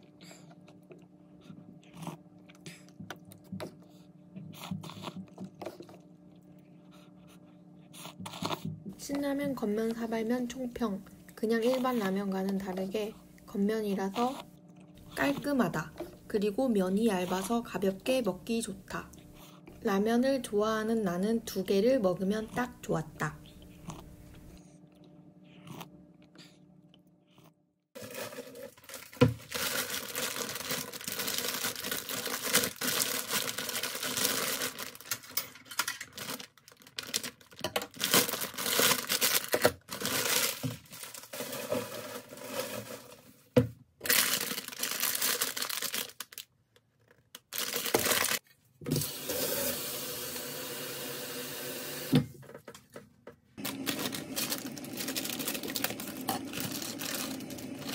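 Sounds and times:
plastic packaging crinkling: 28.0 - 43.2, 44.0 - 48.4, 53.6 - 57.9.

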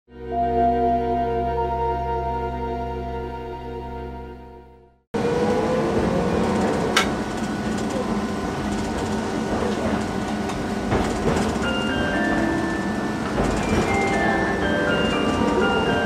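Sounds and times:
streetcar wheels rumbling on rails: 5.2 - 16.0.

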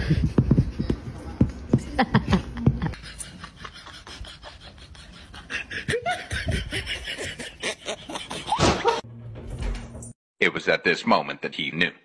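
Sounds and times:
person laughing: 1.8 - 9.0.

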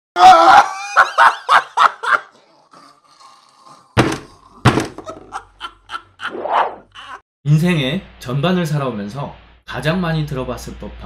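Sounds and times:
heavy thuds: 4.0 - 5.1.

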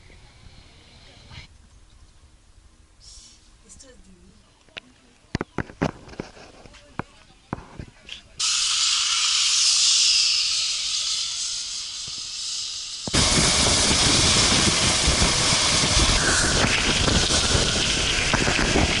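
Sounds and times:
zipline trolley hissing on cable: 8.4 - 19.0
wind buffeting microphone: 13.1 - 19.0.

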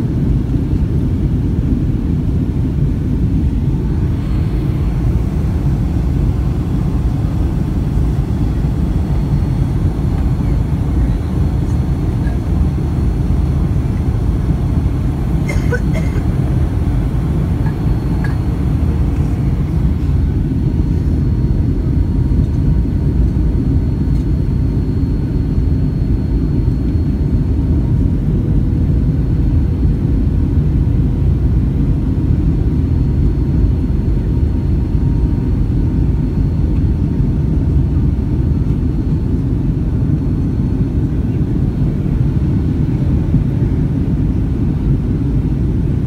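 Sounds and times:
aircraft engine rumble in cabin: 0.0 - 46.0
faint steady hum: 0.0 - 46.0
rushing air: 3.4 - 10.1.

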